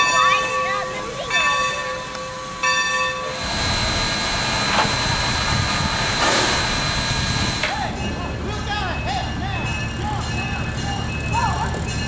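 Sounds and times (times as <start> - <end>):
locomotive low rumble: 0.0 - 12.0
steam hissing: 0.9 - 7.8.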